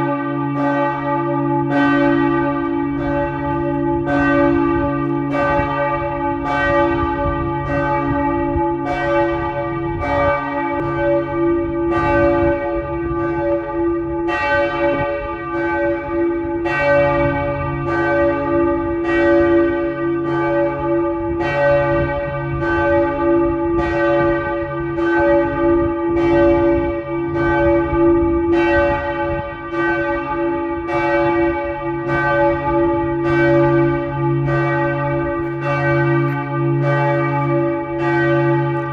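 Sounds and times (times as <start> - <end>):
church bells pealing: 0.0 - 38.9.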